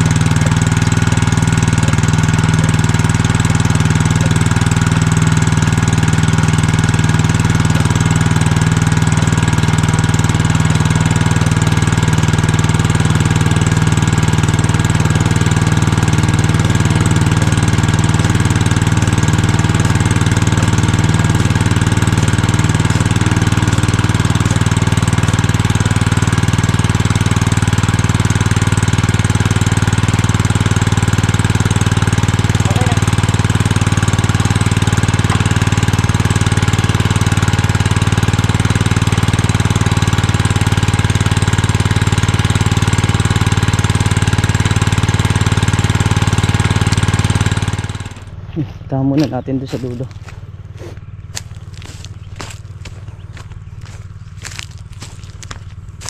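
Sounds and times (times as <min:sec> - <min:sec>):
gasoline water pump running: 0:00.0 - 0:56.0.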